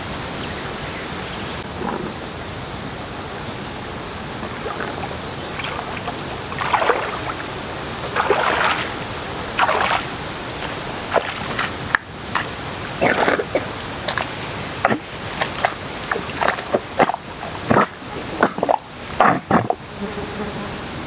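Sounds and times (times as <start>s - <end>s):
steady hiss: 0.0s - 21.0s
footsteps splashing through water: 5.6s - 7.4s, 8.1s - 9.0s, 9.6s - 11.8s, 14.0s - 19.8s.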